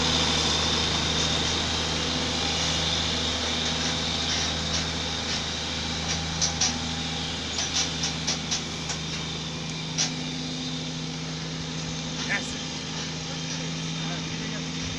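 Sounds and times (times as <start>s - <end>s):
diesel engine under load: 0.0s - 14.9s
sharp clicks and knocks: 3.6s - 6.9s, 7.5s - 10.3s.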